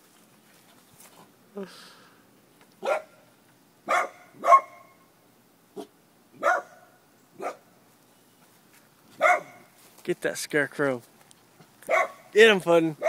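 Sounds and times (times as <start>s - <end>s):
small dog barking: 2.8s - 3.2s, 3.8s - 5.0s, 5.8s - 7.7s, 9.2s - 9.7s, 11.9s - 12.3s.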